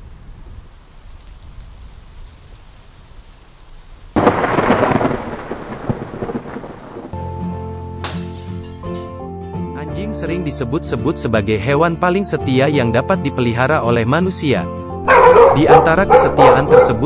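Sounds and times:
low thunder rumble: 0.0 - 7.2
rain: 0.0 - 7.2
loud thunderclap: 4.2 - 7.2.

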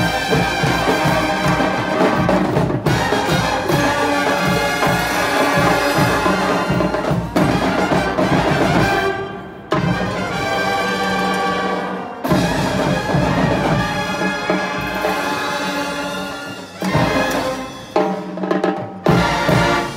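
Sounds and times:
pulsing drum beat: 0.0 - 11.0
marching band brass tune: 0.0 - 19.9.

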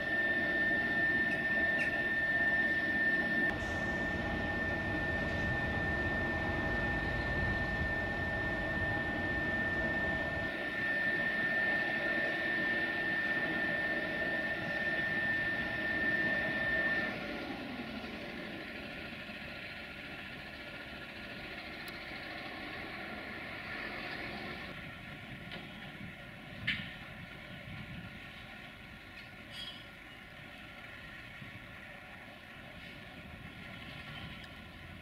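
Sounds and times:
high motor whine: 0.0 - 35.0.

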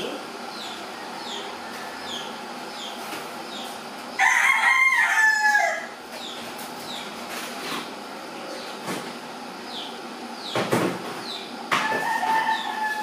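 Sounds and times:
rooster crowing: 0.8 - 2.3, 4.2 - 6.0, 11.7 - 13.0.

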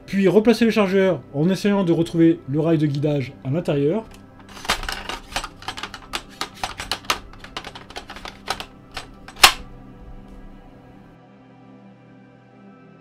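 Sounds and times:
faint background music: 0.0 - 13.0
magazine knocking and clicking: 4.1 - 9.7
loud sharp click: 9.0 - 9.7.

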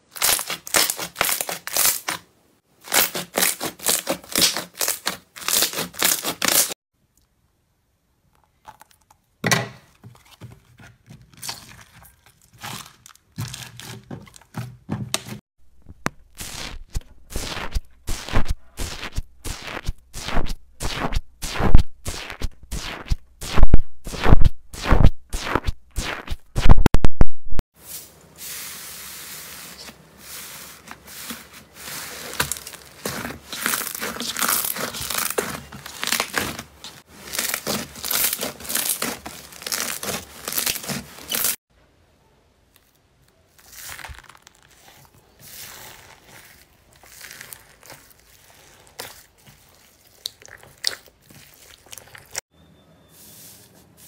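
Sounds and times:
slime crackling and crinkling: 0.0 - 6.8, 11.1 - 14.6, 15.8 - 26.4, 29.0 - 41.6, 42.8 - 52.4.

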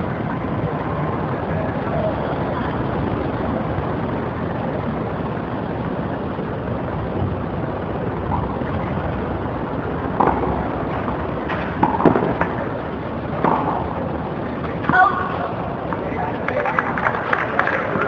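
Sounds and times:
steady background noise: 0.0 - 18.0
tennis ball hit by racket: 10.1 - 12.6.

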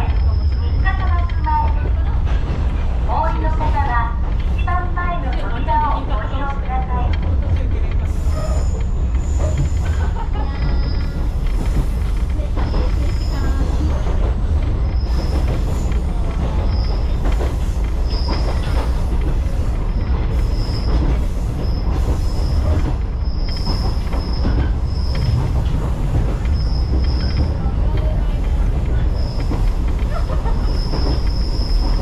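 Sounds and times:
train rumbling: 0.0 - 32.0
wheel squeals: 26.3 - 27.6, 29.1 - 32.0.

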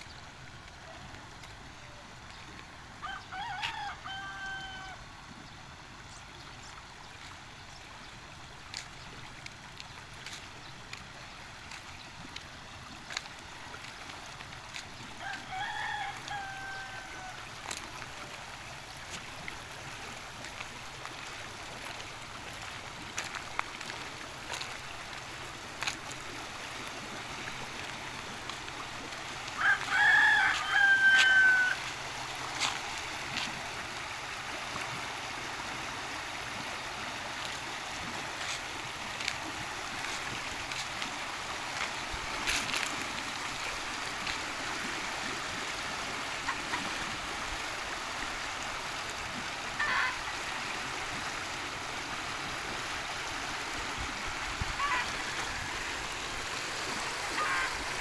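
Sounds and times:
water rushing in a channel: 0.0 - 58.0
rooster crowing: 3.0 - 5.0, 15.2 - 17.5, 29.6 - 31.9.

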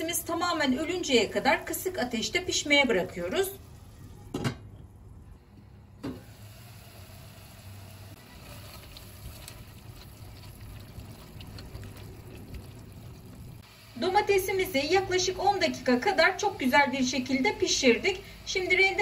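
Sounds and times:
food sizzling in oil: 6.2 - 17.8.

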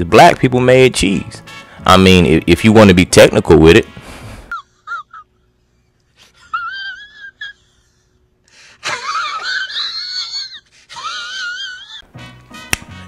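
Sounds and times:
man crying wail: 6.3 - 8.0, 8.8 - 12.0.

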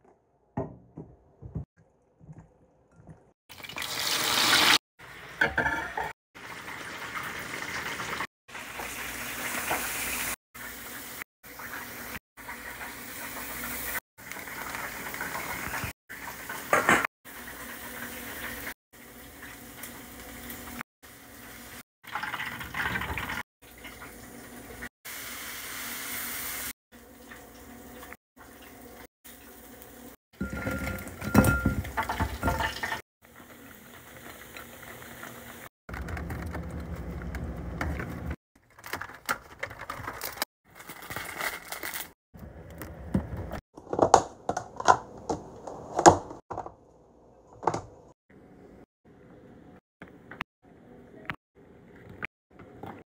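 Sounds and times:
food sizzling: 3.5 - 35.7.

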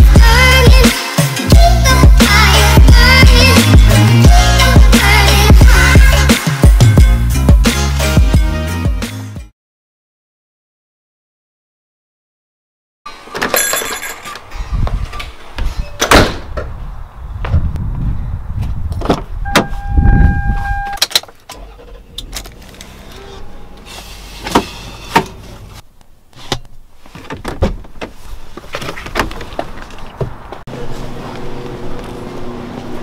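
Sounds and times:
short steady beep: 19.5 - 21.0.

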